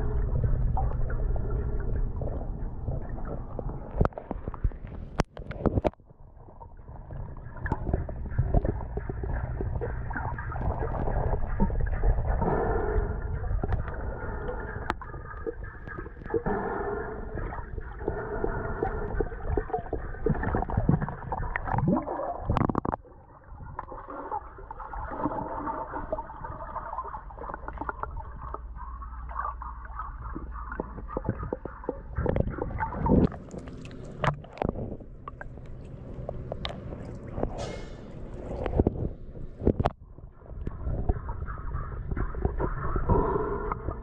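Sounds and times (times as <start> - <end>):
underwater rumble of water: 0.0 - 44.0
underwater clicks and knocks: 2.0 - 6.2, 7.6 - 12.3, 17.4 - 23.1, 30.3 - 44.0.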